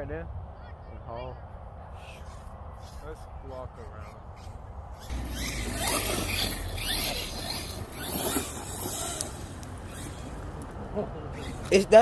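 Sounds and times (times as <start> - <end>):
rc truck electric motor whining: 4.4 - 10.6, 11.3 - 11.8.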